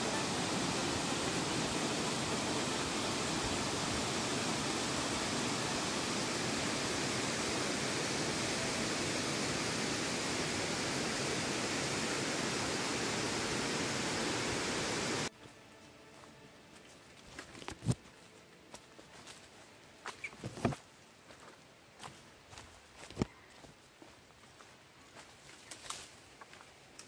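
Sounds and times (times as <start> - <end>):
waterfall rushing: 0.0 - 15.3.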